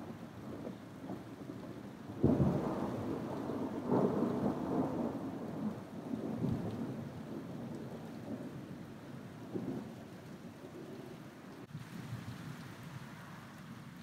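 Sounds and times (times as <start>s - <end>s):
thunder clap and rolling rumble: 0.0s - 11.1s.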